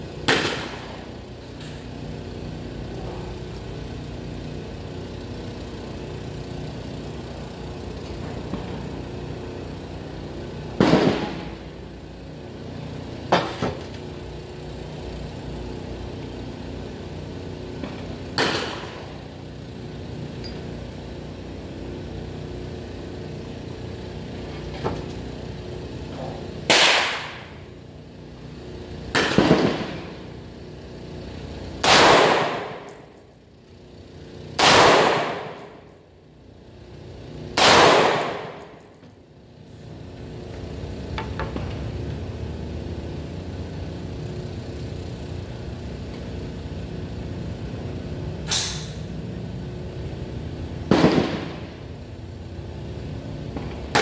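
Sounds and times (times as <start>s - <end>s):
rifle shots: 10.8s - 11.4s, 26.7s - 27.4s, 29.2s - 30.0s, 31.8s - 32.8s, 34.6s - 35.6s, 37.6s - 38.6s, 50.9s - 51.7s.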